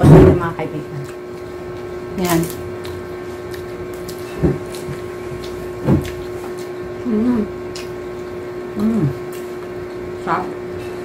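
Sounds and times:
steady mechanical hum: 0.0 - 11.0
woman making mm sounds chewing: 7.0 - 8.0.

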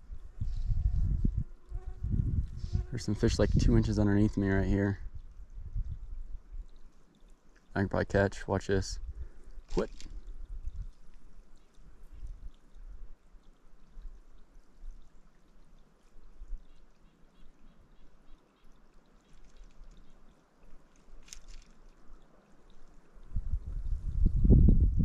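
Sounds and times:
low rumble on microphone: 0.0 - 6.9, 7.8 - 13.2, 23.2 - 25.0
faint creek trickling: 0.0 - 25.0.

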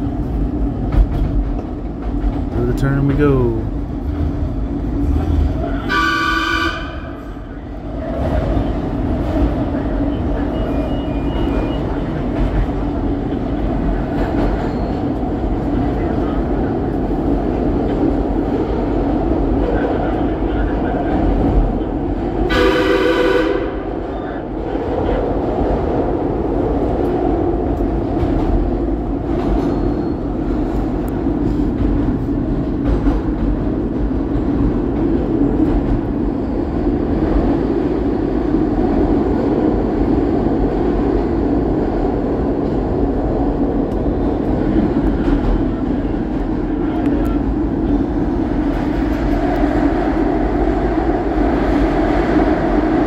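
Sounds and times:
subway train running in tunnel: 0.0 - 53.0
train horn blast: 5.8 - 7.2, 22.5 - 23.8.

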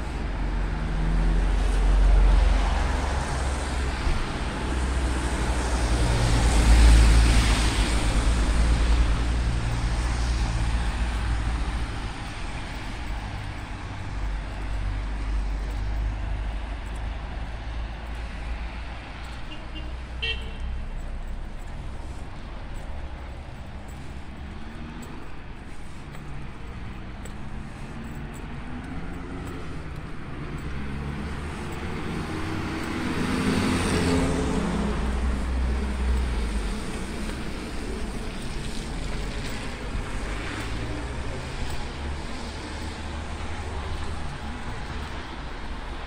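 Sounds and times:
car passing on wet street: 0.0 - 46.0
tyres hissing on wet asphalt: 0.0 - 46.0.

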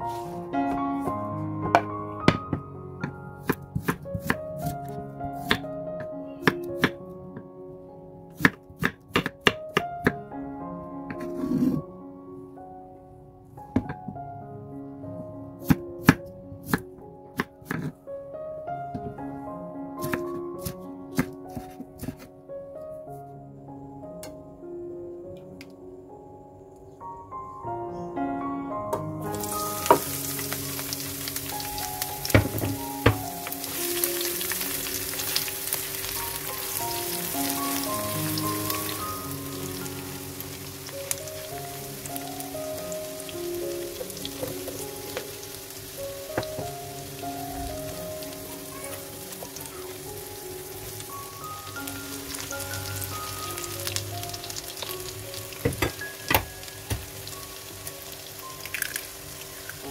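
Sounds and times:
background music: 0.0 - 59.9
vegetables sizzling in hot oil: 29.3 - 59.9.

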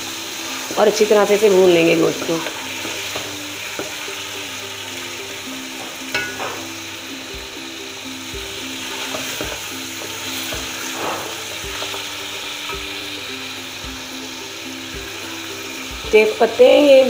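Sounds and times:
meat sizzling in hot oil: 0.0 - 17.0
ringing knock on a pot: 6.1 - 6.6
wooden spoon scraping a pot: 8.9 - 12.1.

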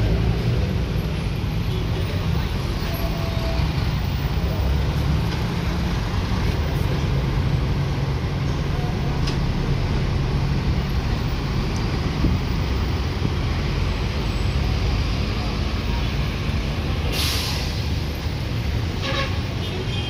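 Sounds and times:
road traffic engines: 0.0 - 20.0.

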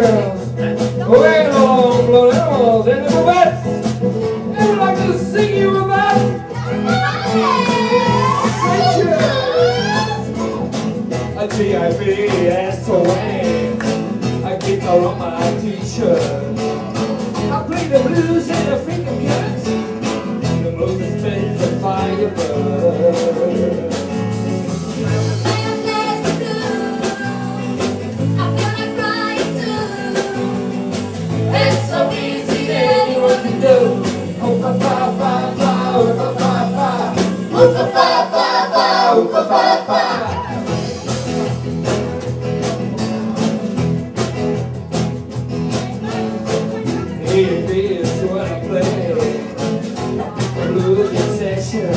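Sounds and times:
acoustic guitars strumming: 0.0 - 51.9
drums keeping a steady beat: 0.0 - 51.9
women singing: 6.5 - 10.2, 25.3 - 40.5.

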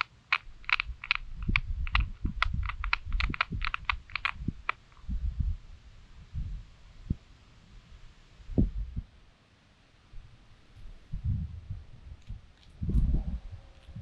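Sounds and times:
small sharp clicks and taps: 0.0 - 5.0
dull low thumps: 0.5 - 7.3, 8.4 - 9.2, 10.1 - 14.0.

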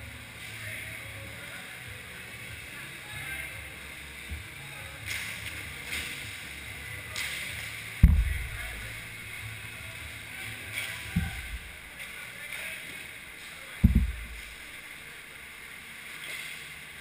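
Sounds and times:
indoor rink background noise: 0.0 - 17.0
dull low thumps: 8.0 - 9.3, 11.2 - 12.0, 13.8 - 14.8.

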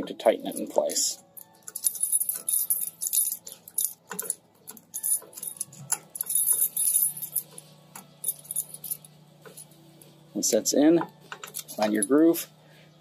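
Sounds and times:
keys jangling: 1.4 - 9.8.

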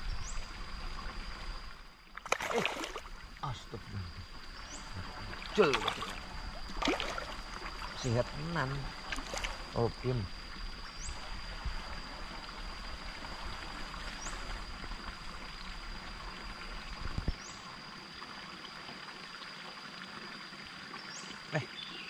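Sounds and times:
water trickling into pond: 0.0 - 22.0.

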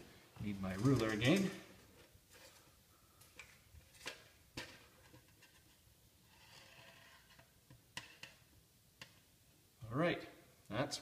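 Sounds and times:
soft rustle: 0.0 - 7.5.

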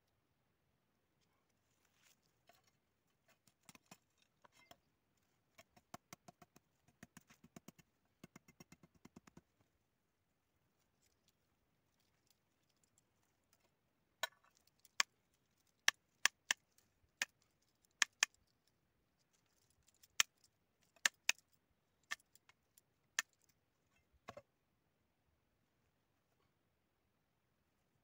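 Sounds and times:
woody cuttings clicking and snapping: 12.0 - 23.6.

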